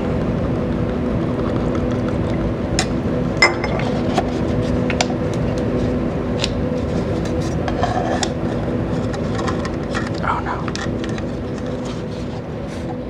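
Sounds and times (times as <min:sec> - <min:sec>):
steady low hum: 0:00.0 - 0:13.0
glass cylinder clinking: 0:03.4 - 0:03.8.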